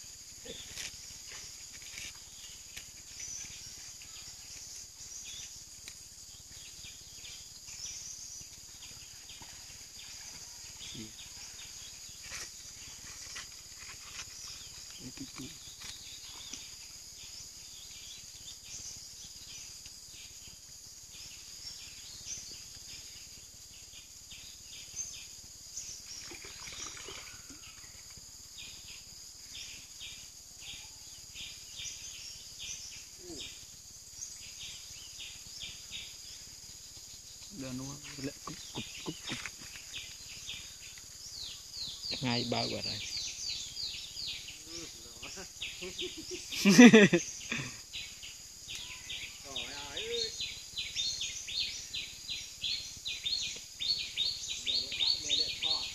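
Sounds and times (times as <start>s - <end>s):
insect drone and chirps: 0.0s - 55.9s.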